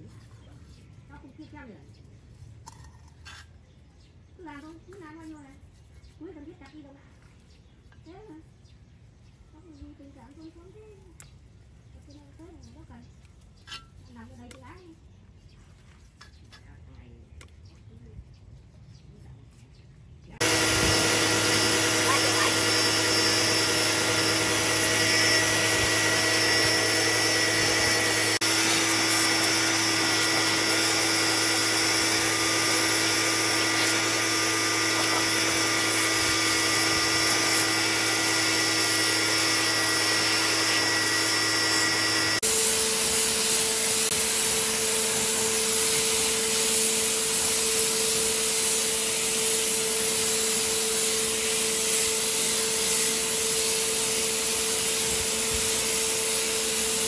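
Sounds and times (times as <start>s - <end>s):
power tool motor running: 20.4s - 57.0s.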